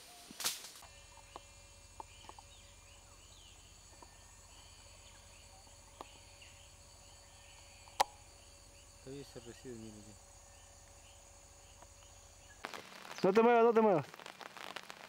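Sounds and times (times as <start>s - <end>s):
steady low hum: 0.8s - 13.1s.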